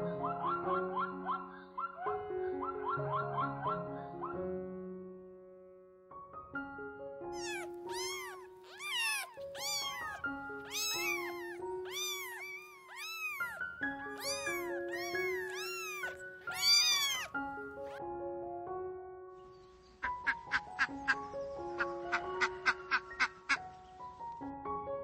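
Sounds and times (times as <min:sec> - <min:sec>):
slow background music: 0:00.0 - 0:25.0
cat meowing: 0:07.4 - 0:18.0.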